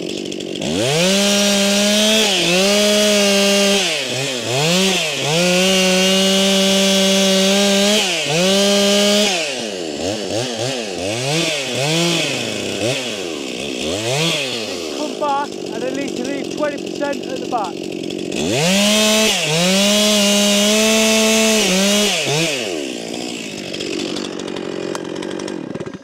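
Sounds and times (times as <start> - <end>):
chainsaw cutting and revving: 0.0 - 26.0.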